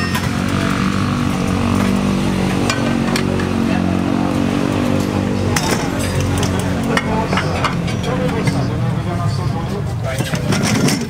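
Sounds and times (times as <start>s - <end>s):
motorcycle engine running: 0.0s - 10.2s
tire tools clicking: 4.7s - 8.7s.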